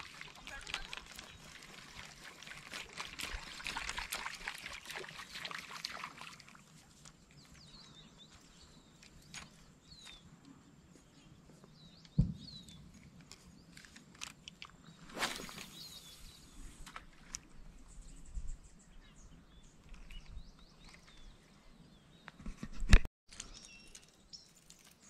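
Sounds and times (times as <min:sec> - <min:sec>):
birds chirping: 0:07.2 - 0:16.8
sharp thump: 0:12.2 - 0:12.6.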